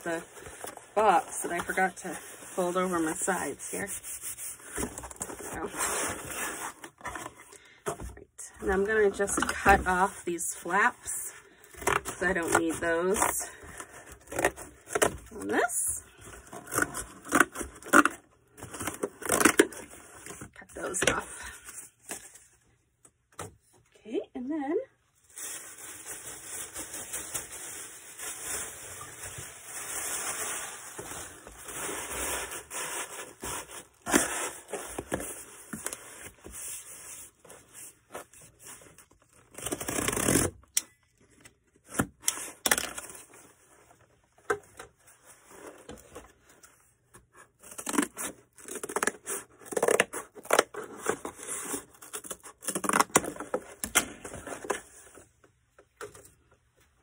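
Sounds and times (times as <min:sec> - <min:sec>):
cardboard tearing: 0:39.3 - 0:40.7, 0:47.6 - 0:53.8.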